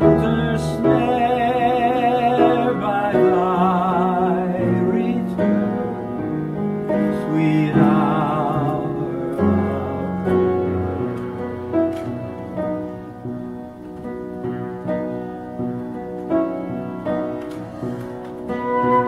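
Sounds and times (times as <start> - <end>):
piano chords: 0.0 - 19.0
wavering melody with vibrato: 18.5 - 19.0.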